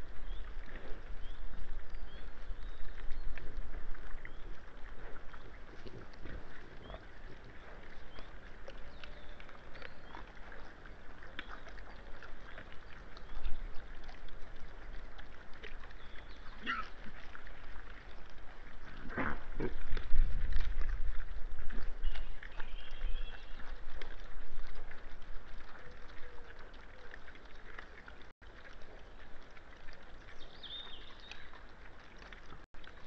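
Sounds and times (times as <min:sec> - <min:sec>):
boar chewing and rooting: 0:00.0 - 0:33.0
boar grunts: 0:16.6 - 0:17.0.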